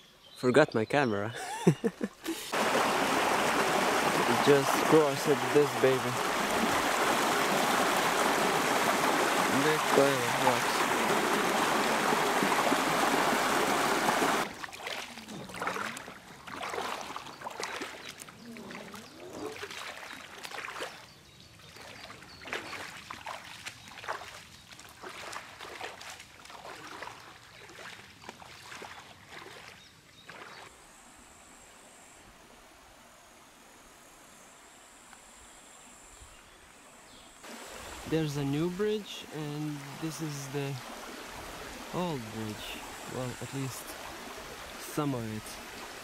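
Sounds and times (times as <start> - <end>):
wading footsteps splashing: 1.6 - 30.8
rapids rushing over rocks: 2.4 - 14.6, 37.4 - 46.0.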